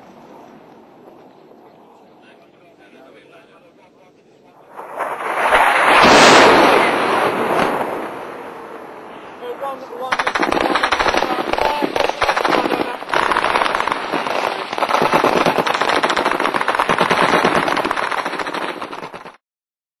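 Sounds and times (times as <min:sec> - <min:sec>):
automatic machine-gun fire: 0:05.2 - 0:08.0, 0:10.1 - 0:19.4.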